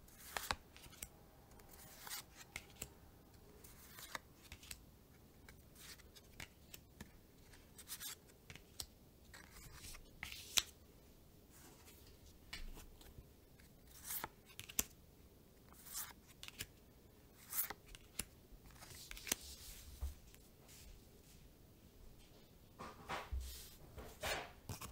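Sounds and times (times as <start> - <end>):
cards swishing: 17.4 - 19.8.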